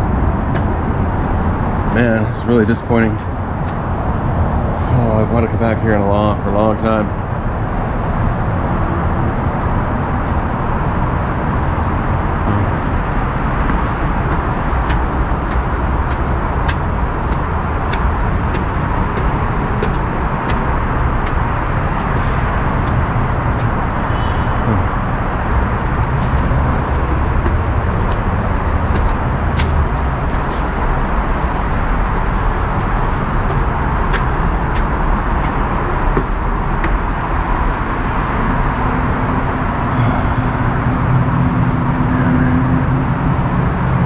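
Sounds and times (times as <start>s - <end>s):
freeway traffic roar: 0.0s - 44.0s
footsteps on concrete: 11.3s - 23.8s, 26.0s - 38.0s.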